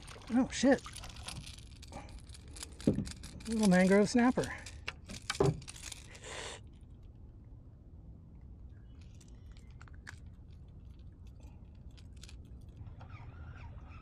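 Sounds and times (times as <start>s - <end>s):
hands handling fish: 0.0s - 7.2s
low steady rumble: 0.0s - 14.0s.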